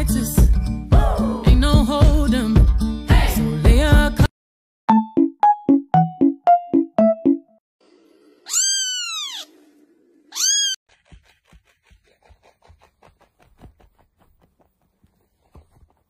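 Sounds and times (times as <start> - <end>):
cat meowing: 8.5 - 9.5, 10.3 - 10.8.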